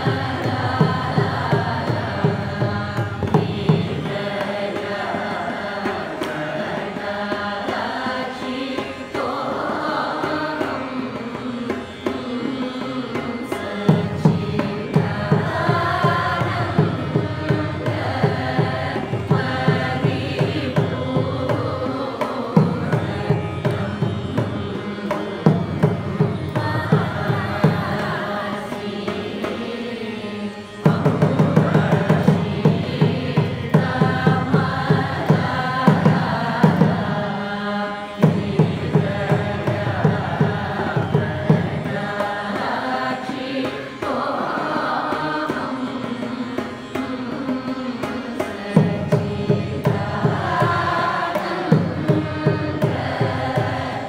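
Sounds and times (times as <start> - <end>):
group singing in unison: 0.0 - 54.0
tambura drone: 0.0 - 54.0.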